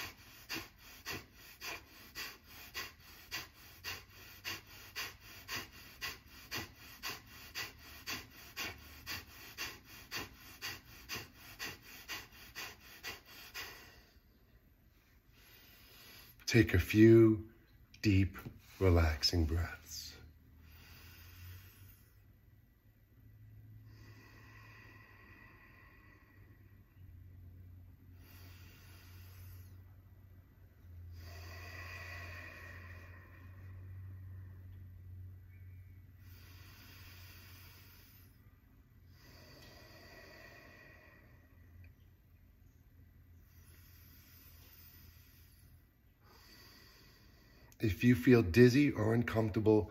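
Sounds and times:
forceful nasal exhalations: 0.0s - 14.2s
deep breaths through nose: 0.0s - 16.4s, 20.5s - 22.4s, 23.6s - 27.4s, 28.0s - 34.7s, 35.5s - 42.0s, 43.3s - 47.8s.

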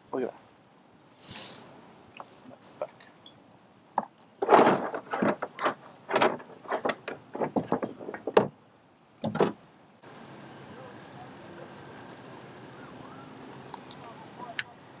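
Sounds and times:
steady low hiss: 0.0s - 15.0s
fish handling rustles and scrapes: 4.3s - 8.4s.

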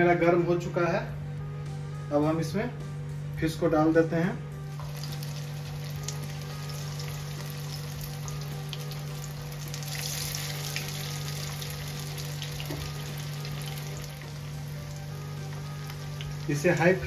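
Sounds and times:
fish frying in hot oil: 4.8s - 17.0s.

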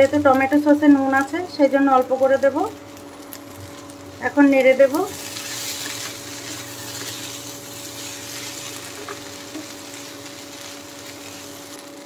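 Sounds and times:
pasta sizzling in a frying pan: 0.0s - 12.0s
steady hum: 0.0s - 12.0s
wooden spatula scraping: 5.1s - 11.8s.

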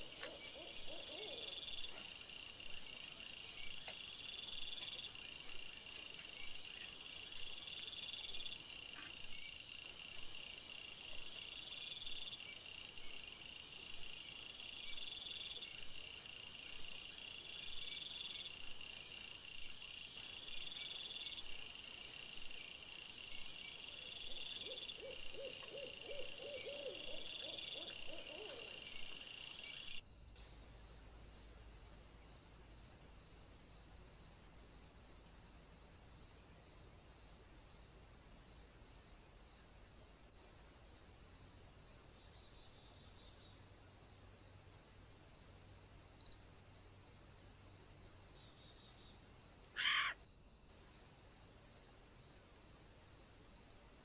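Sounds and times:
insect chorus trilling: 0.0s - 30.5s, 47.8s - 53.9s
short lower insect calls: 0.0s - 31.3s, 47.9s - 54.0s.

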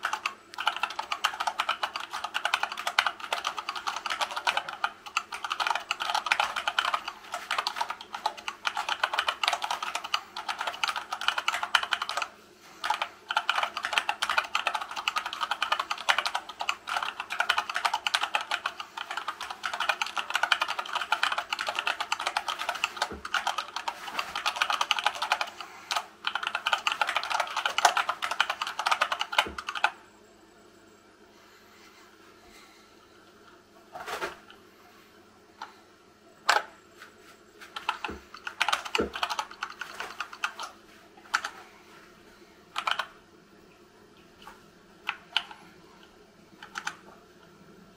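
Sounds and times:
fast typing on keyboard: 0.0s - 30.0s, 37.7s - 41.6s, 42.8s - 43.1s, 45.1s - 45.6s, 46.6s - 47.0s.

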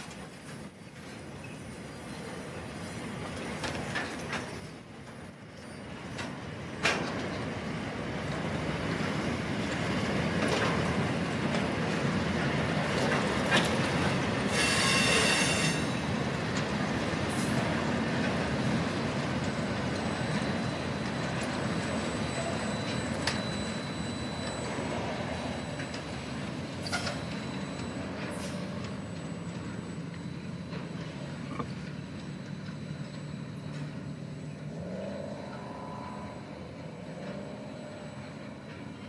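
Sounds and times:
train wagons rumbling on rails: 0.0s - 39.0s
high-pitched wheel squeal: 14.5s - 16.0s, 21.8s - 26.0s.

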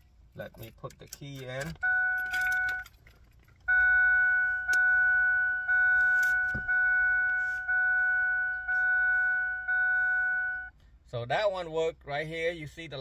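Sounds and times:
keys jingling: 0.6s - 3.7s
car warning chime: 1.6s - 3.0s, 3.6s - 10.7s.

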